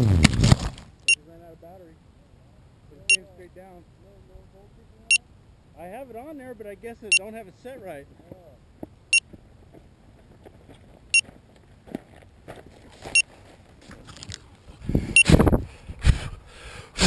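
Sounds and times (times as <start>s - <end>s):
footsteps: 8.2s - 14.8s
handling rustle: 9.6s - 14.8s.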